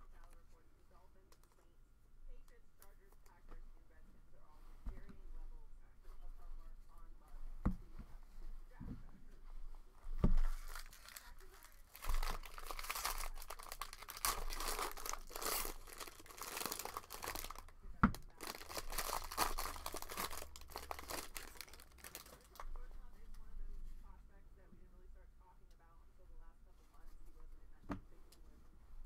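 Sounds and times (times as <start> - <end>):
foil wrapper crinkling: 10.4 - 22.7.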